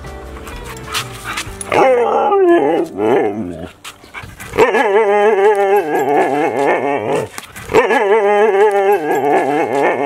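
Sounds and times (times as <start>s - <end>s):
husky howling and yodeling: 1.6s - 3.7s, 4.5s - 10.0s.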